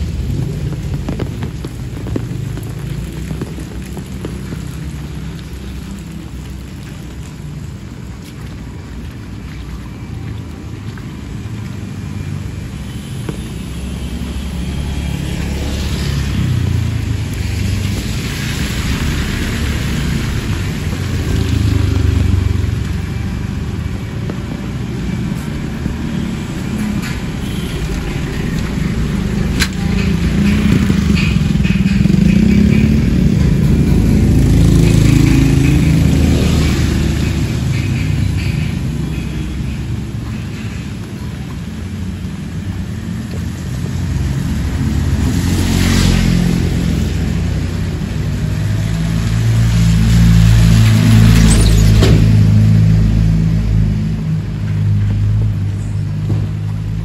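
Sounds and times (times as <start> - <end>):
rain hiss: 0.0 - 31.2
motorcycles passing: 0.0 - 57.0.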